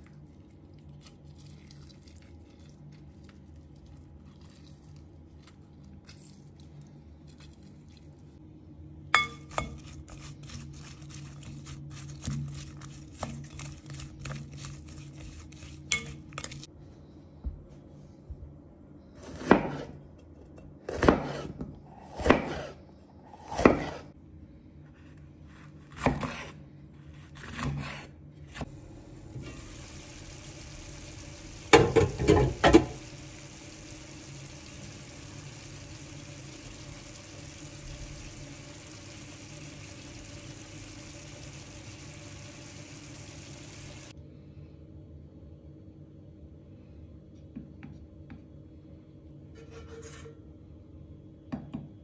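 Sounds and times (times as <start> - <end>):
knife cutting pepper on board: 20.9 - 22.7, 23.4 - 24.0, 25.5 - 28.6
pot simmering with hiss: 28.6 - 44.2.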